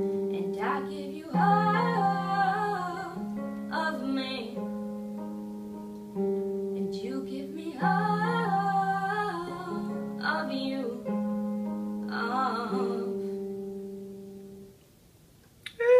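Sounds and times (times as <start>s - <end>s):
keyboard piano chords: 0.0s - 14.8s
girl singing: 0.3s - 4.7s, 6.8s - 11.3s, 12.0s - 13.4s, 15.7s - 15.9s.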